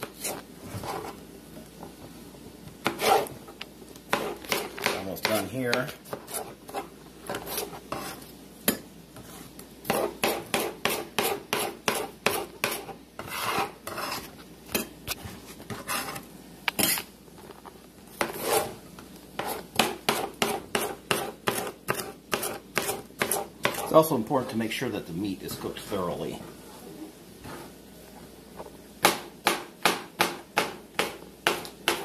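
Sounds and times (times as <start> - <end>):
knife scraping cutting board: 0.0 - 1.2, 2.8 - 3.4, 4.1 - 8.3, 9.2 - 17.1, 18.1 - 18.8, 19.4 - 24.6
knife chopping on cutting board: 2.8 - 3.3, 4.1 - 8.8, 9.9 - 14.2, 19.4 - 23.9, 29.0 - 32.0.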